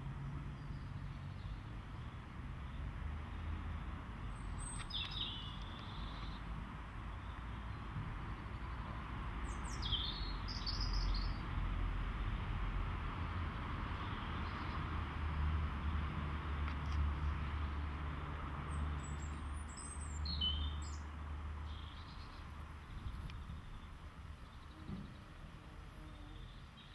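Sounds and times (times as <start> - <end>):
small birds chirping: 4.3 - 6.5, 9.4 - 11.4, 18.7 - 26.9.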